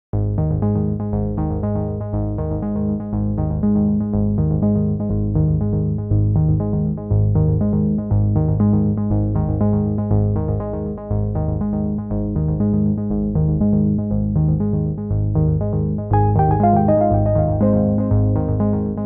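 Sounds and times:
electronic synthesizer music: 0:16.2 - 0:19.0.

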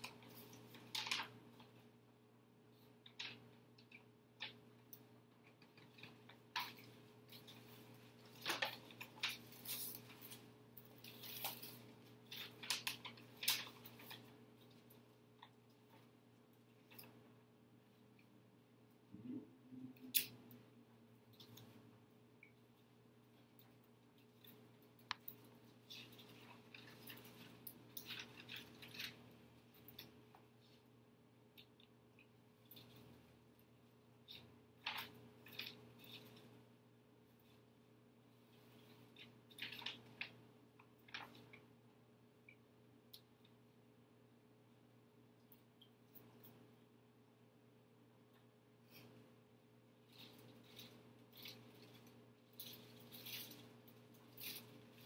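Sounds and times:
paper envelopes rustling: 0:00.0 - 0:01.8, 0:05.7 - 0:14.8, 0:25.8 - 0:29.9, 0:38.8 - 0:40.4
faint steady hum: 0:00.0 - 0:55.0.

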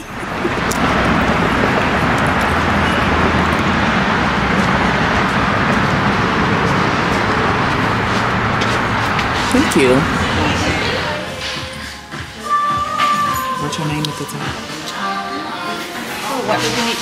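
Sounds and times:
low hum: 0:00.0 - 0:12.3
road traffic rush: 0:00.0 - 0:17.0.

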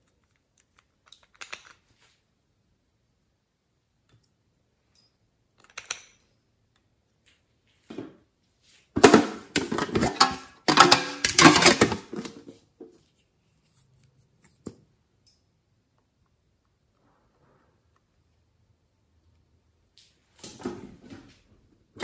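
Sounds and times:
metal tin clattering: 0:09.0 - 0:12.4.

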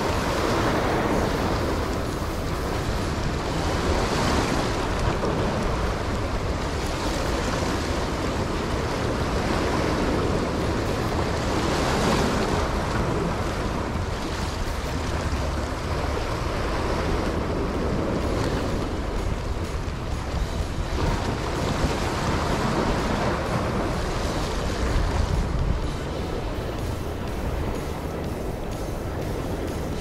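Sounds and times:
small waves breaking on rocks: 0:00.0 - 0:30.0
wind rumbling on microphone: 0:00.0 - 0:30.0.

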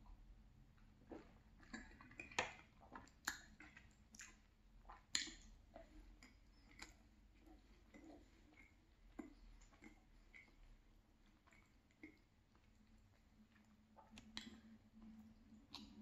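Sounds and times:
wet mouth clicks and lip smacks: 0:01.1 - 0:05.5, 0:06.2 - 0:10.6, 0:13.5 - 0:16.0.

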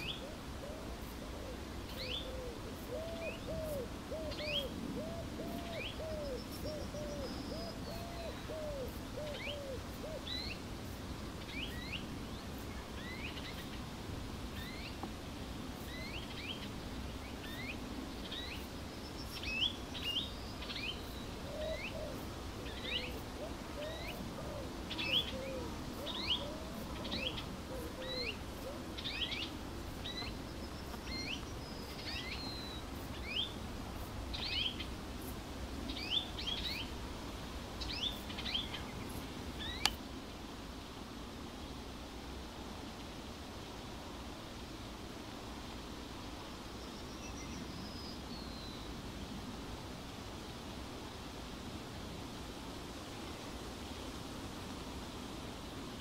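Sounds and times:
soft lower bird calls: 0:00.0 - 0:10.6, 0:17.3 - 0:33.6.

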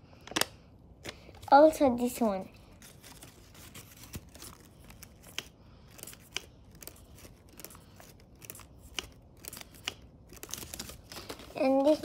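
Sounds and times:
paper crinkling: 0:02.7 - 0:12.0
sharp paper ticks: 0:03.1 - 0:12.0.

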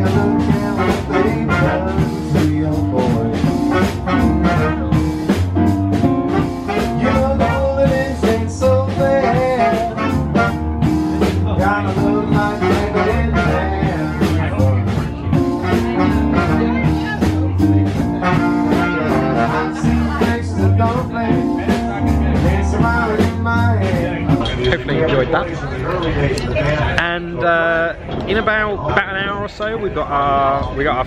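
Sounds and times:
trumpet: 0:00.0 - 0:08.4, 0:09.0 - 0:10.9, 0:12.0 - 0:14.2, 0:15.4 - 0:20.2
trombone: 0:00.0 - 0:24.4
jazz band playing: 0:00.0 - 0:25.8
saxophone: 0:00.1 - 0:08.2, 0:09.0 - 0:10.9, 0:12.0 - 0:14.3, 0:15.3 - 0:20.6.

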